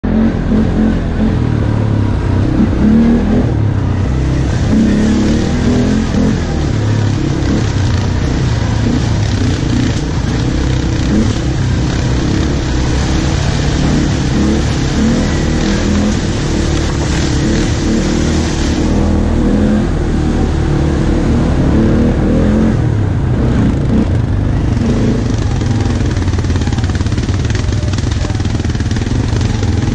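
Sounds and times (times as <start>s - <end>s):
atv engine running: 0.0s - 29.9s.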